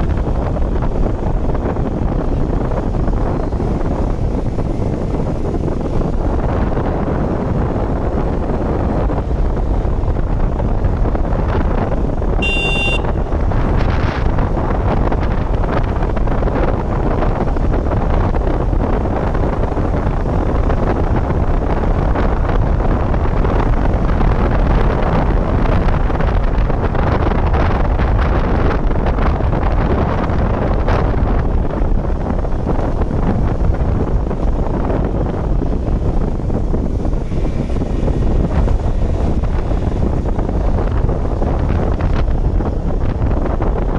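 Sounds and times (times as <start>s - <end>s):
motorcycle engine running: 0.0s - 22.9s
wind buffeting microphone: 0.0s - 43.9s.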